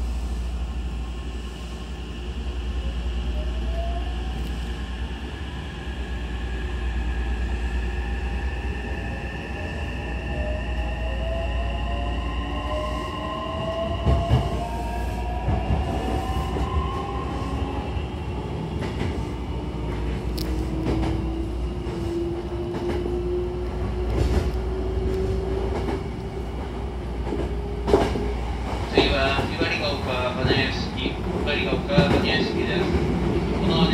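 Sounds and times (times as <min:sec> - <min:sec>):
train running rumble: 0:12.9 - 0:33.9.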